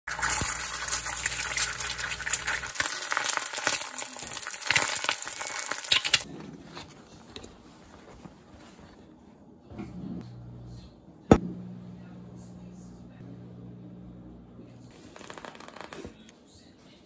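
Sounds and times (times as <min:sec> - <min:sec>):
egg sizzling in frying pan: 0:00.1 - 0:06.3
cloth bag rustling: 0:14.9 - 0:16.3.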